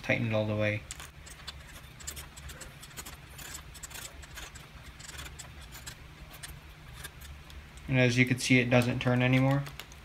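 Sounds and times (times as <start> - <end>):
plastic clicks and scrapes: 0.9 - 7.9.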